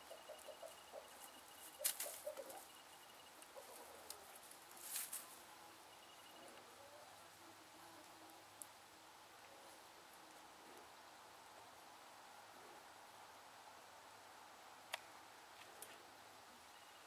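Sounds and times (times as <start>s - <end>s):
rustling of straw bedding: 0.0s - 5.6s.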